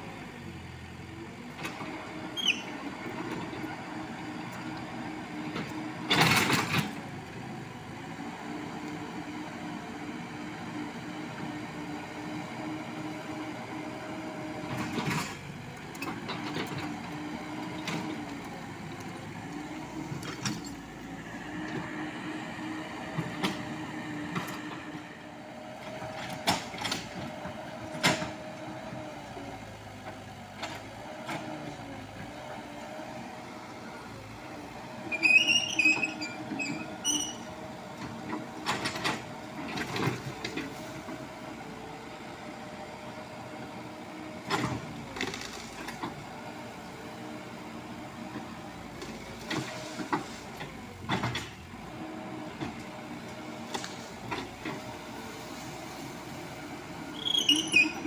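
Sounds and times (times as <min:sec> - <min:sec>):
excavator diesel engine running: 0:00.0 - 0:58.0
high-pitched squeaks: 0:57.2 - 0:58.0.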